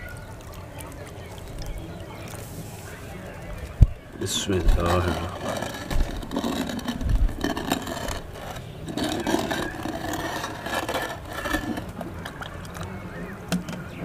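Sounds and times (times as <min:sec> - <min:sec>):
wooden pestle scraping clay bowl: 0:04.2 - 0:12.9.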